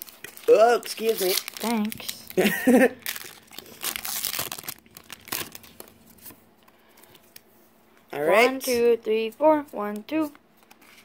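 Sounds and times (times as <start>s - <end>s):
foil wrapper crinkling and tearing: 0.0s - 6.3s.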